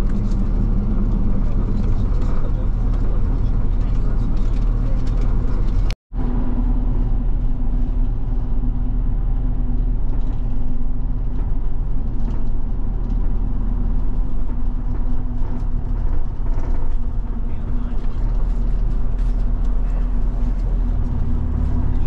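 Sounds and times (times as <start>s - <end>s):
bus engine drone: 0.0s - 22.0s.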